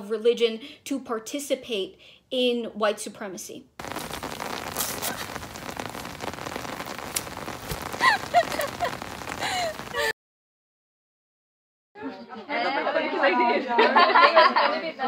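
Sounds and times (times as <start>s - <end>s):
rain on wet pavement: 3.8s - 10.1s.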